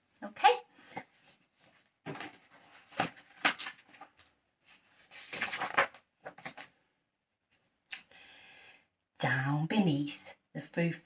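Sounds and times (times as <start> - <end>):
pages rustling: 0.8 - 6.8.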